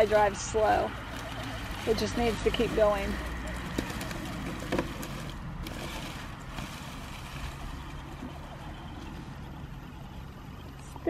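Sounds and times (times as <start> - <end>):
small electric motor whirring: 0.0 - 11.0.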